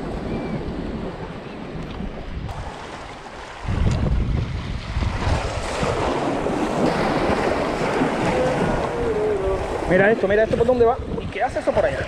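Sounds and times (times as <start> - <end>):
wind gusting over microphone: 0.0 - 12.0
waves washing against rocks: 2.4 - 10.8.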